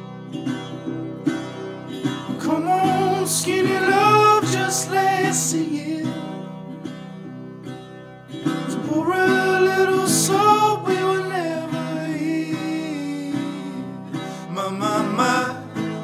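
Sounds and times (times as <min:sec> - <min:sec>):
acoustic guitar picking: 0:00.0 - 0:16.0
person singing: 0:02.3 - 0:06.6, 0:08.7 - 0:16.0.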